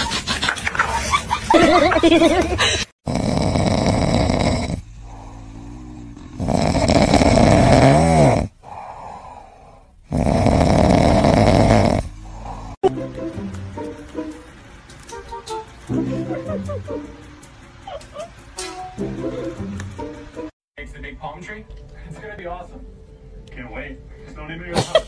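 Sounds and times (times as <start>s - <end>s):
cat snoring: 3.0s - 12.8s
cat breathing: 3.5s - 7.6s, 8.4s - 12.8s.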